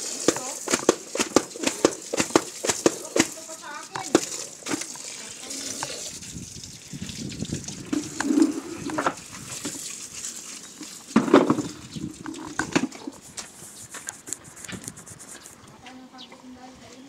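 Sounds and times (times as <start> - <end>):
water running from a hose: 0.0 - 15.6
sharp knocks and clatters: 0.3 - 3.4, 4.0 - 5.0, 11.1 - 15.0.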